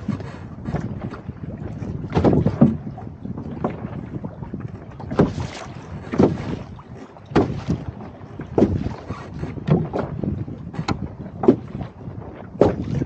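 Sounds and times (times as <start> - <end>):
water splashing against canoe hull: 0.0 - 13.0
wind rumbling on microphone: 0.0 - 13.0.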